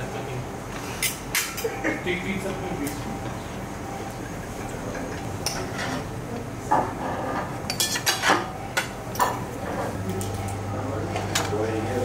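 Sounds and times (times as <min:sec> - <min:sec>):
cutlery clinking on plates: 0:01.0 - 0:01.8, 0:06.7 - 0:09.5.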